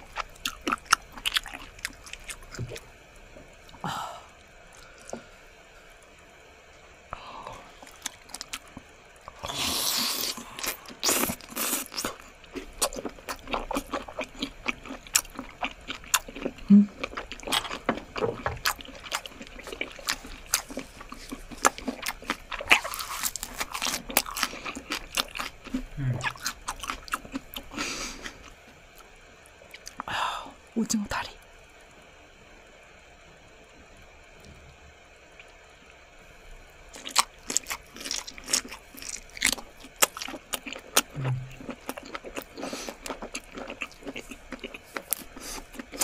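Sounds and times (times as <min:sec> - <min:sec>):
wet chewing clicks and smacks: 0:37.0 - 0:46.0.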